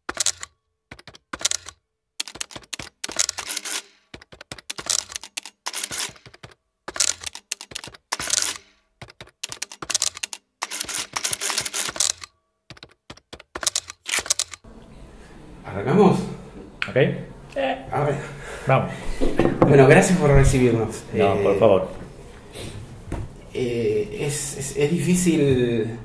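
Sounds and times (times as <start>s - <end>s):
rapid clicking: 0.1s - 14.6s.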